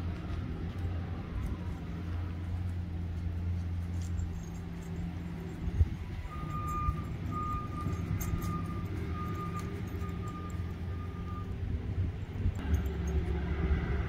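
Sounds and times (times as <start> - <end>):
low engine rumble: 0.0 - 14.0
back-up alarm beeping: 6.2 - 11.6.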